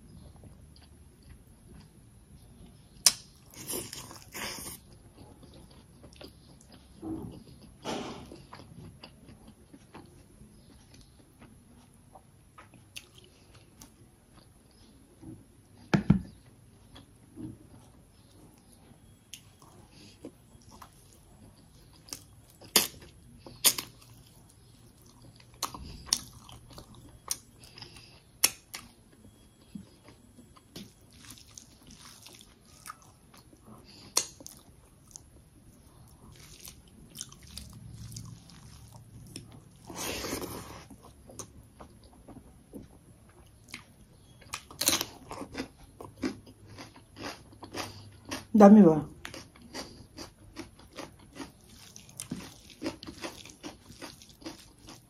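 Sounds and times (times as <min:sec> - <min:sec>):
person chewing and biting food: 0:19.3 - 0:48.5, 0:49.2 - 0:55.0.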